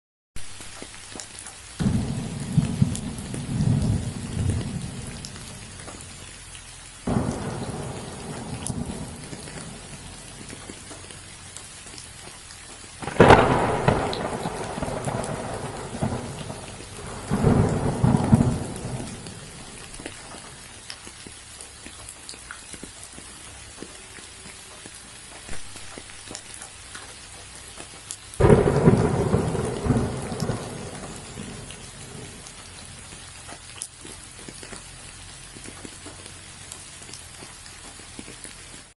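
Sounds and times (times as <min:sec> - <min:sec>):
steady rain falling: 0:00.4 - 0:39.0
thunder rolling: 0:01.8 - 0:06.2, 0:07.1 - 0:11.2, 0:13.0 - 0:20.5, 0:28.4 - 0:33.0.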